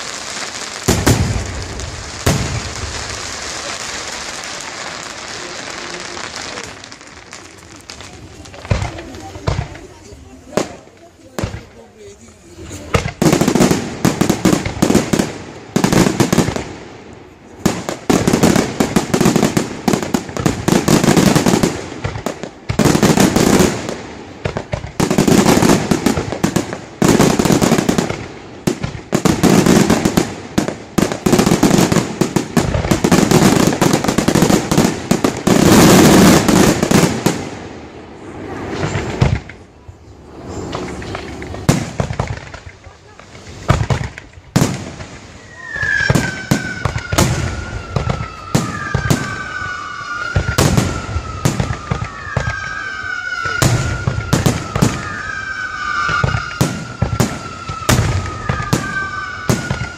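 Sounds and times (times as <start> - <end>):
firework bangs and crackle: 0.0 - 59.9.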